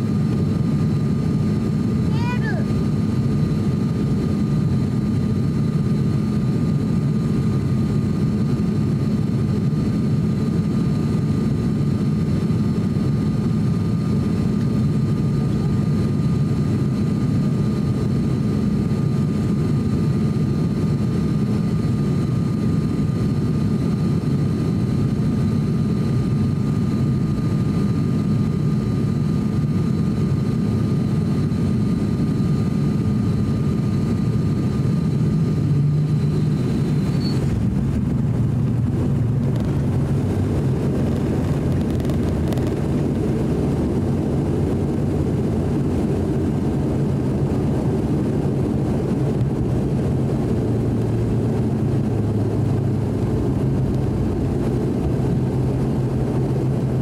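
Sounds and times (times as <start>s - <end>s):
turboprop engine drone: 0.0s - 57.0s
thin high whine: 35.2s - 37.9s.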